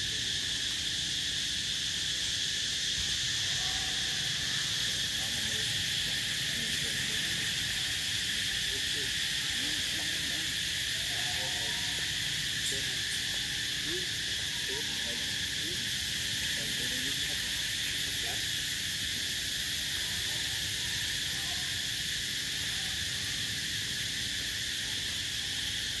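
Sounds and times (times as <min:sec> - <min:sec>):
high-pitched insect chorus: 0:00.0 - 0:26.0.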